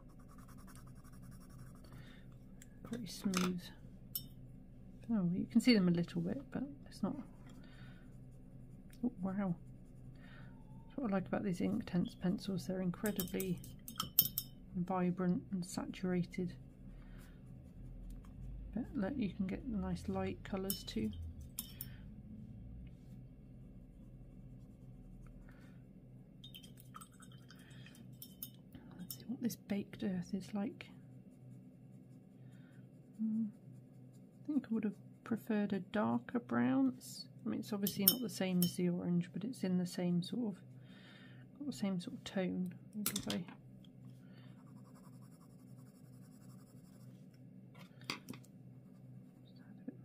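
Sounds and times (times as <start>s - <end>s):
pencil scratching on paper: 0.0s - 2.0s, 44.6s - 47.2s
paintbrush strokes on paper: 0.0s - 2.1s, 4.9s - 13.4s, 15.1s - 21.2s, 22.8s - 25.7s, 29.9s - 35.6s, 44.5s - 47.4s
low room hum: 0.0s - 50.0s.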